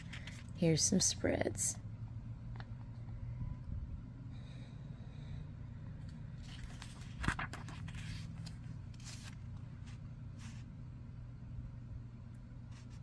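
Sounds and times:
paper page turning: 0.0 - 0.5, 6.4 - 10.7
low background hum: 0.0 - 13.0.

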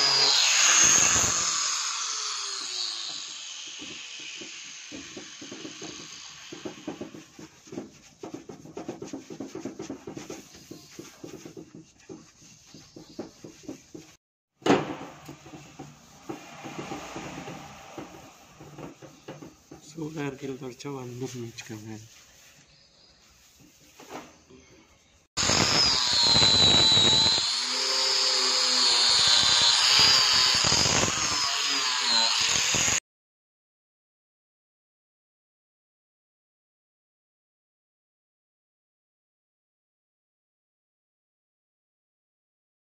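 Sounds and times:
angle grinder grinding metal: 0.0 - 7.1, 25.4 - 33.0
cloth rubbing on steel sheet: 7.0 - 14.2, 15.4 - 24.5.

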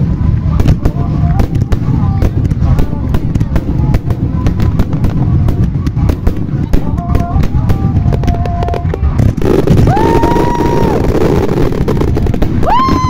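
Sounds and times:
firework shell bursts rumbling: 0.0 - 13.0
firework whistling: 0.0 - 13.0
fireworks crackling: 0.0 - 13.0.

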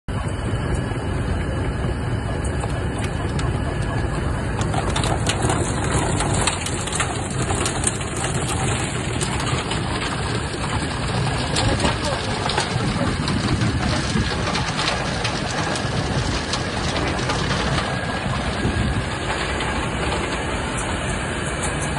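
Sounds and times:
machinery drone: 0.1 - 21.9
almonds rattling on conveyor: 4.6 - 21.9.

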